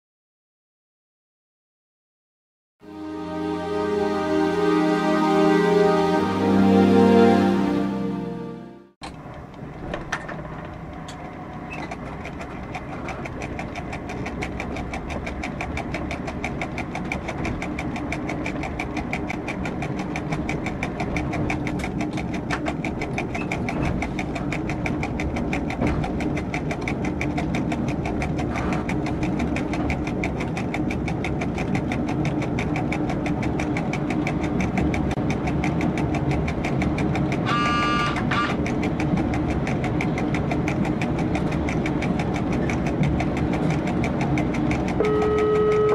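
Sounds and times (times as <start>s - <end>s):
short high tone: 2.8s - 8.9s, 45.0s - 45.9s
diesel railcar engine running: 2.9s - 45.9s
fast even ticking: 11.9s - 38.0s.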